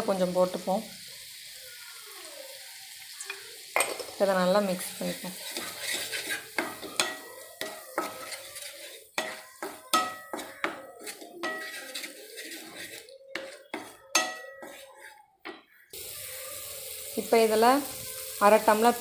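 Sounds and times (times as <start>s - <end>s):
wooden spatula scraping a pan: 4.8s - 15.7s.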